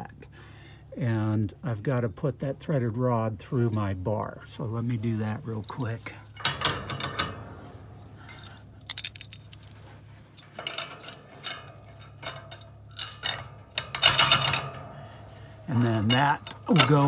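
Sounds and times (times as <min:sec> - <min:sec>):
metal rod clinking and rattling: 0:05.6 - 0:07.6, 0:08.2 - 0:09.8, 0:10.4 - 0:15.0, 0:15.8 - 0:17.0.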